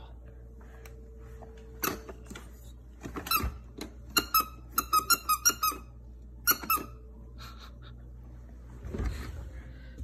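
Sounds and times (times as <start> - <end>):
squeaky toy squeaking: 3.3 - 7.0.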